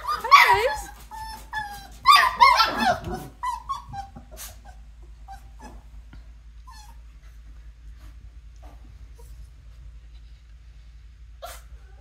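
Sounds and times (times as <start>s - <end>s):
puppies whining and yipping: 0.0s - 6.0s, 6.6s - 7.2s.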